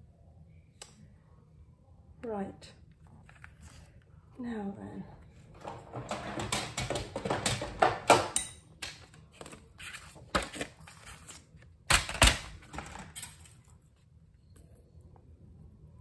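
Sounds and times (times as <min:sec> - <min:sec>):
irregular clicks and knocks: 0:05.6 - 0:09.0
paper rustling: 0:09.1 - 0:11.7.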